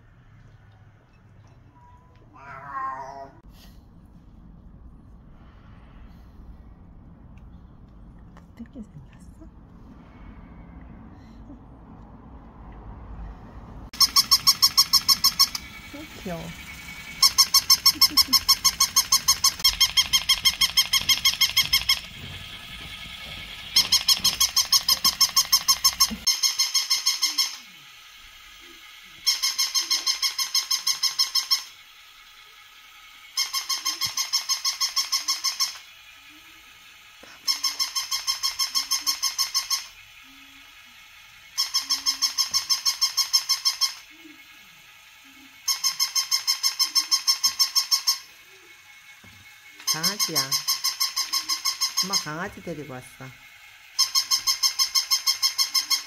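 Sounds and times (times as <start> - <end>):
toy dog electronic yips: 14.0 - 27.8, 28.6 - 31.9, 33.2 - 36.7, 37.4 - 40.7, 41.5 - 48.4, 49.8 - 52.9, 53.9 - 56.0.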